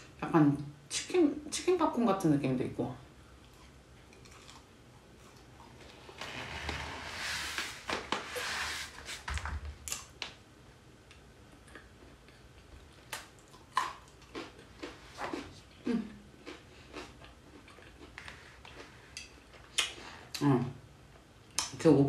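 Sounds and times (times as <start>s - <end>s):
crunchy chewing: 3.4s - 6.2s, 11.6s - 20.0s.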